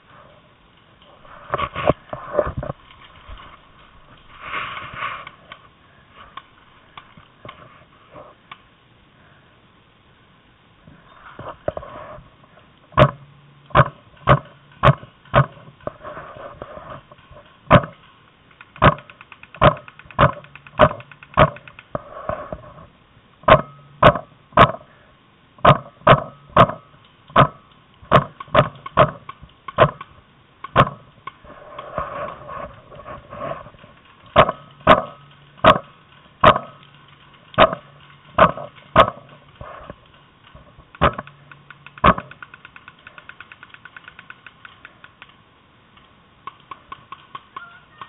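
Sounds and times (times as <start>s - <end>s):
paintball markers firing: 17.7s - 22.0s, 25.6s - 31.4s, 34.0s - 45.4s, 46.4s - 48.0s.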